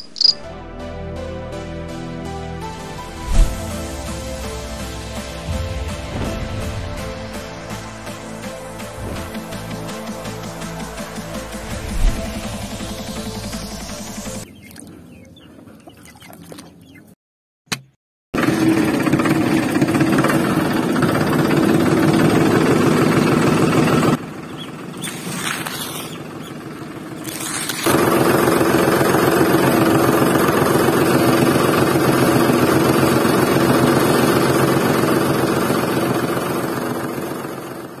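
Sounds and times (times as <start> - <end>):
motor buzzing loudly: 18.4 - 37.9.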